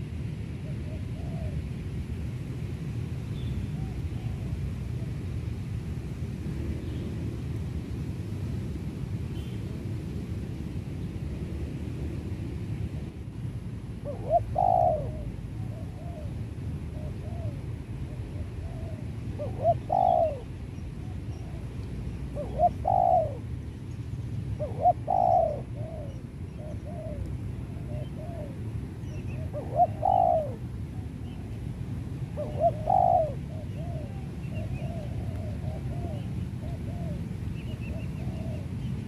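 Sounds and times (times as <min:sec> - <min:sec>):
dove cooing: 0:00.6 - 0:01.6, 0:14.0 - 0:21.7, 0:22.3 - 0:23.5, 0:24.6 - 0:31.5, 0:32.2 - 0:38.9.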